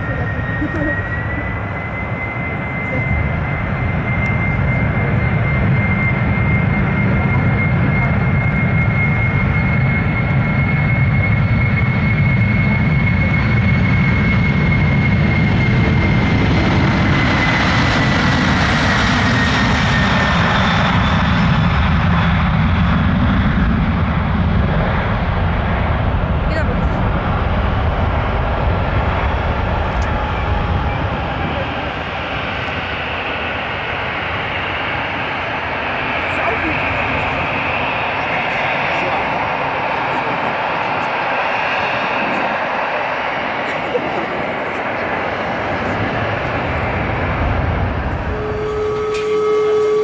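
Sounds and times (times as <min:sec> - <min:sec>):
jet engines rumbling: 0:00.0 - 0:50.0
high fan whine: 0:47.6 - 0:50.0.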